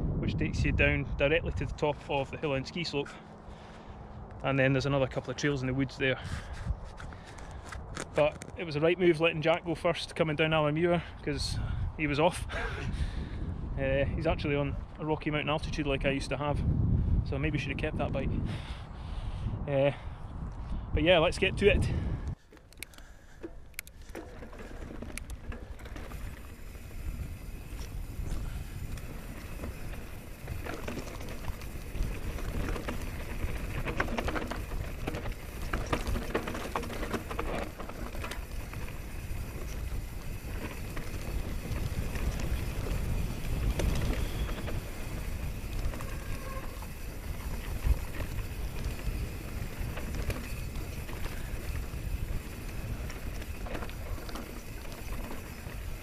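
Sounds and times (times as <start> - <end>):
wind rumbling on microphone: 0.0 - 4.5, 5.5 - 8.8, 11.2 - 22.4, 23.4 - 56.0
bike frame rattling and knocking: 22.5 - 27.2, 28.1 - 56.0.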